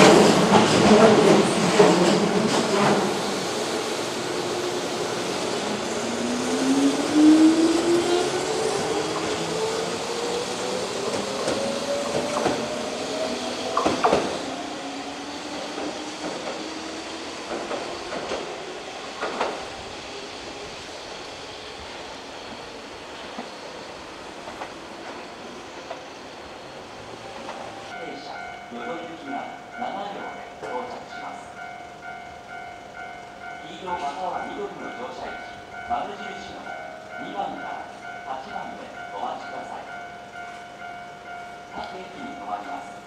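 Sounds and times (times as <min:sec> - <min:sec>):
wheels clacking over rail joints: 0:00.0 - 0:03.3, 0:10.1 - 0:14.7, 0:15.5 - 0:19.6.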